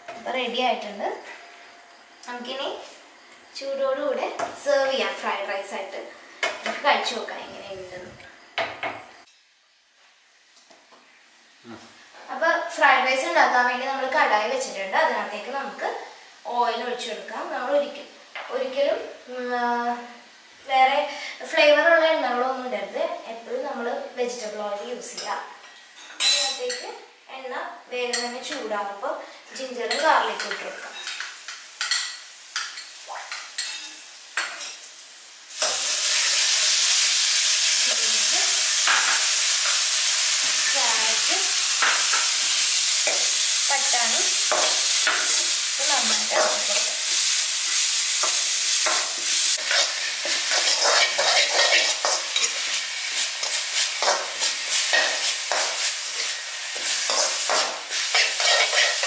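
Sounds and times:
vegetables sizzling in hot oil: 0.0s - 59.0s
spatula scraping and knocking pan: 48.2s - 59.0s.

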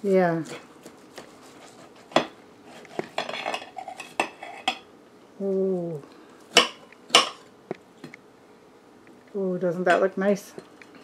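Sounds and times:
knife and fork scraping plate: 0.5s - 4.8s.

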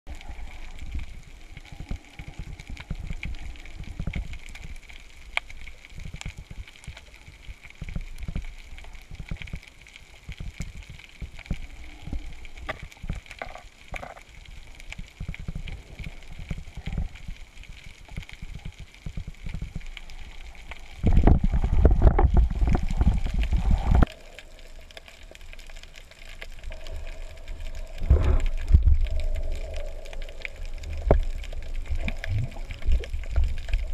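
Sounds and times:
underwater hiss: 0.1s - 5.8s, 11.4s - 13.6s, 20.0s - 33.9s
low knocks and crackles: 0.1s - 33.9s.

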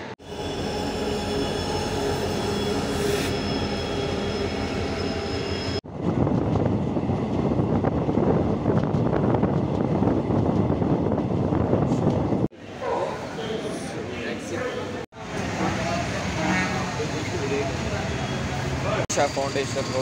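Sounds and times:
train rumbling over track: 0.0s - 20.0s
train rolling with high squeal: 0.2s - 5.8s, 13.2s - 20.0s.

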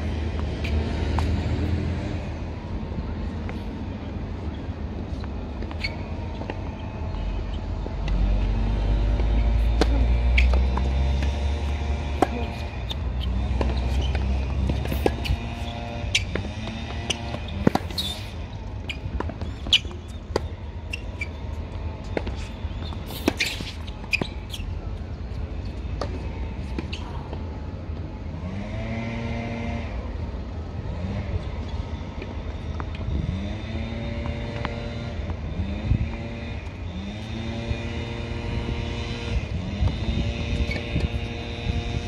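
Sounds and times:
distant engine hum: 0.0s - 42.0s
tennis balls hit and bouncing: 3.3s - 28.1s, 31.2s - 42.0s
wind rumble on microphone: 29.4s - 42.0s.

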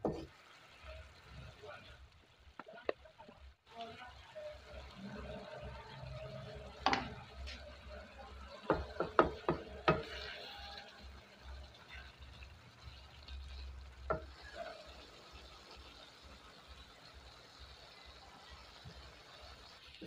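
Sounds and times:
utensils knocking and scraping wok: 0.0s - 0.3s, 6.8s - 7.6s, 8.6s - 10.6s, 14.1s - 14.6s
low simmer: 0.0s - 20.0s.

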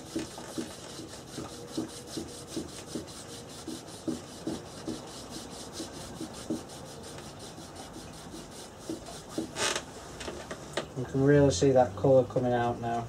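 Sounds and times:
cloth rubbing on wood: 0.0s - 9.9s.

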